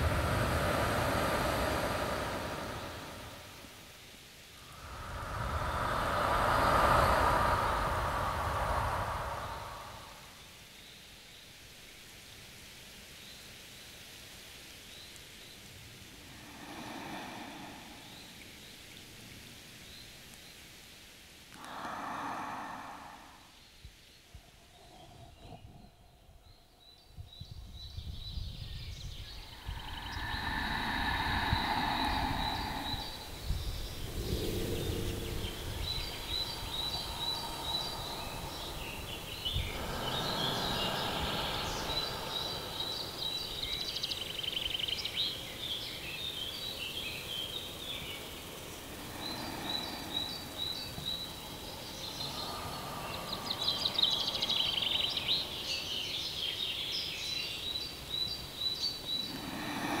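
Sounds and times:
small birds chirping: 0.0s - 12.2s, 12.9s - 60.0s
outdoor background hiss: 0.0s - 60.0s.

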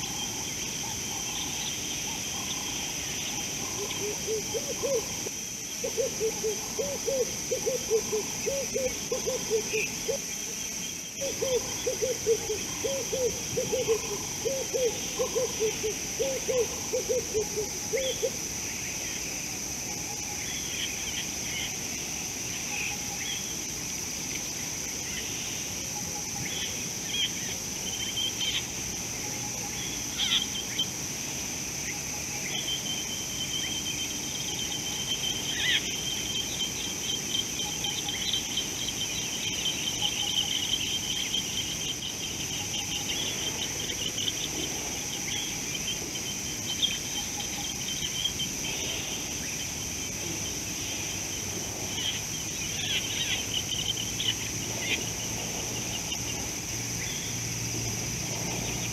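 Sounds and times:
high-pitched insect drone: 0.0s - 58.9s
rapid bird trill: 32.5s - 44.5s.

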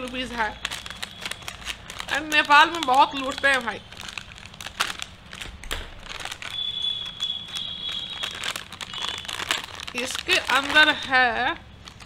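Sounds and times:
plastic snack packet crinkling: 0.0s - 12.0s.

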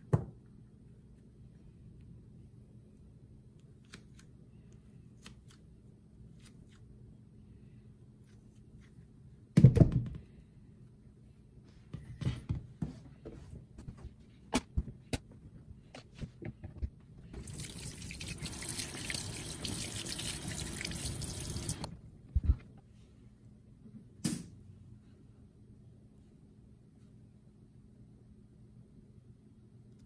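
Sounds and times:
tap water running into sink: 17.4s - 21.9s.

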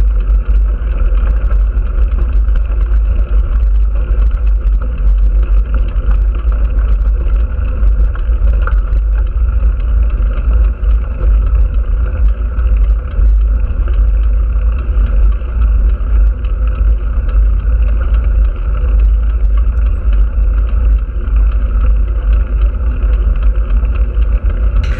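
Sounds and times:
heavy wind rumble on microphone: 0.0s - 24.9s.

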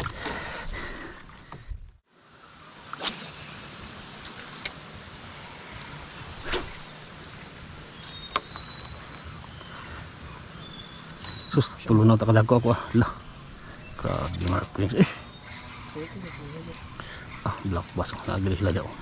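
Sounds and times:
steady hiss: 2.1s - 19.0s
faint high whistles: 6.4s - 9.6s.

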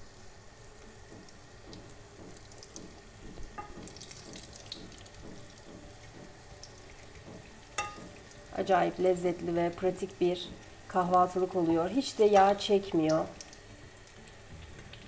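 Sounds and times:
dough sizzling in frying oil: 0.0s - 15.0s
metal fork clinking on pan: 7.8s - 8.1s.

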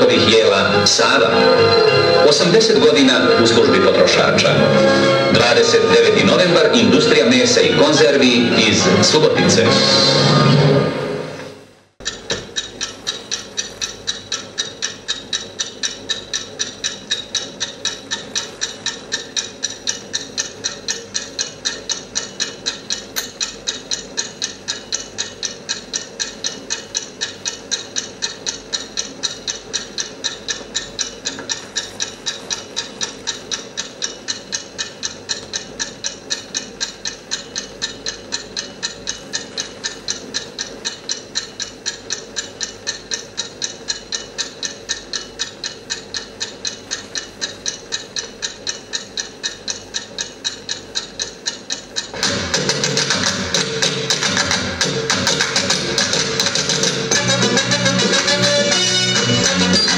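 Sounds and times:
alarm clock ticking: 0.0s - 9.8s, 12.0s - 59.9s.

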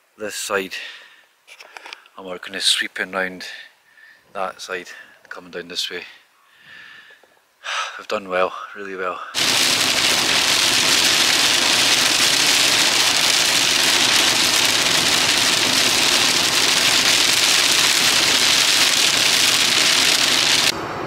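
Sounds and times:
heavy rain on a car: 9.4s - 20.8s
tyres hissing on wet road: 9.4s - 21.0s.

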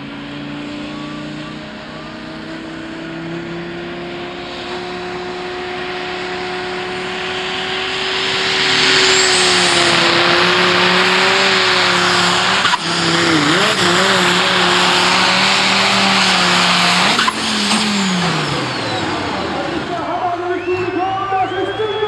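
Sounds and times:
high whine: 5.4s - 22.0s
tractor engine running flat out: 7.3s - 22.0s.

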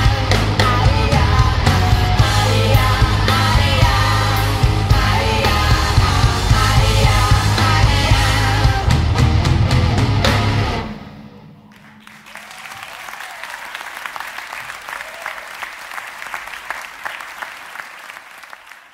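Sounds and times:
live rock band playing: 0.0s - 11.6s
audience applauding: 11.6s - 18.9s.

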